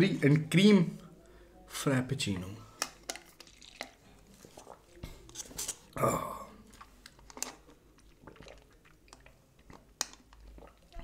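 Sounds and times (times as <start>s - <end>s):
wet clicks and swallows: 6.7s - 11.0s.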